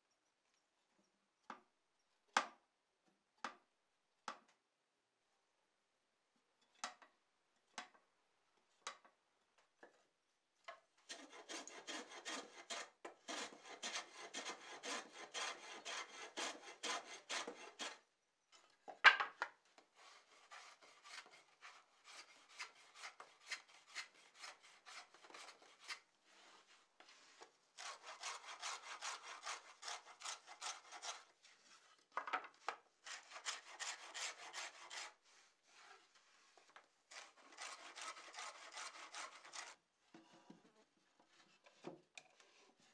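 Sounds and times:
hand tool scraping wood: 11.1 - 18.0, 20.0 - 32.0, 33.0 - 39.8.

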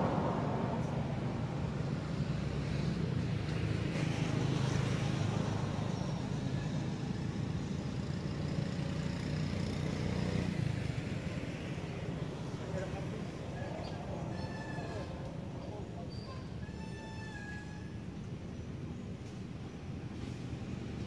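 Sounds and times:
motor vehicle engine rumble: 0.0 - 16.6.

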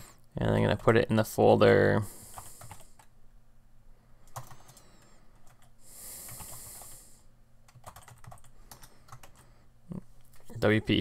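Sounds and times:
computer keyboard keystrokes: 2.3 - 3.1, 4.3 - 4.8, 5.4 - 5.7, 6.3 - 6.9, 7.6 - 9.4.

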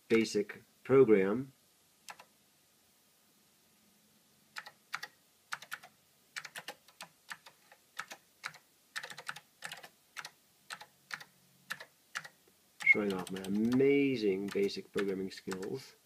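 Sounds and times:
keyboard keystrokes clicking: 2.1 - 2.3, 4.6 - 13.8, 14.4 - 15.8.

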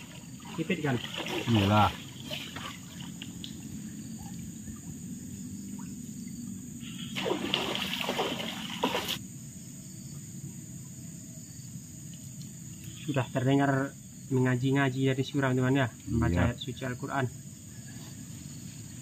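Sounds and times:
water trickling and splashing: 0.0 - 9.2
insects chirring: 0.0 - 19.0.

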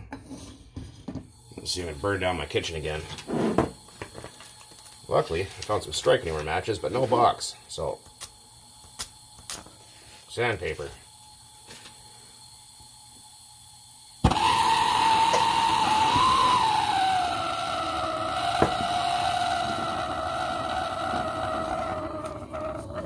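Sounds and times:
torch flame hissing: 1.3 - 23.0
torch lighting pop: 14.2 - 14.5, 18.4 - 19.1.

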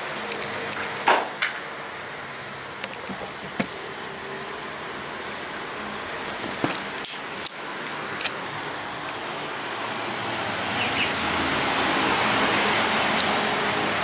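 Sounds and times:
outdoor background hiss: 0.0 - 14.0
footsteps and handling clicks: 0.2 - 1.6, 2.8 - 3.9, 5.0 - 8.4.

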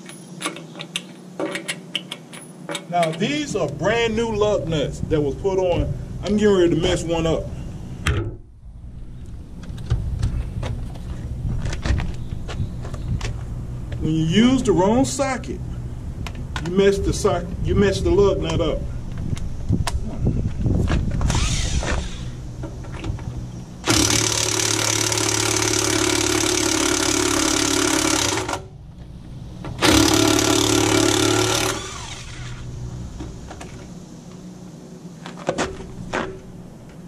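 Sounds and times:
handling clicks and knocks: 0.0 - 3.3
impact wrench hammering: 23.8 - 28.6, 29.8 - 32.0.

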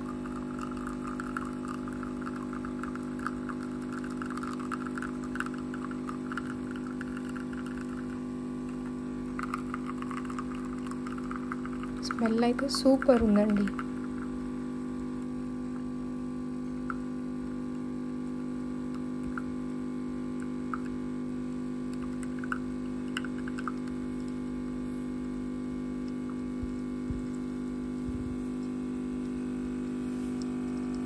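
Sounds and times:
coffee running into a cup: 0.0 - 14.4, 18.9 - 21.0, 21.8 - 24.7
coffee machine pump humming: 0.0 - 31.0.

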